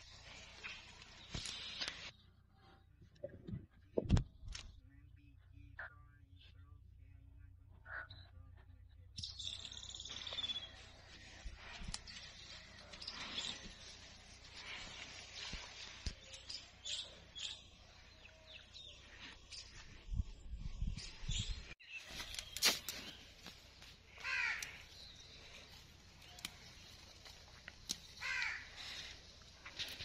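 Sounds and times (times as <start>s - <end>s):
bird calls: 9.2s - 20.0s, 21.0s - 30.0s.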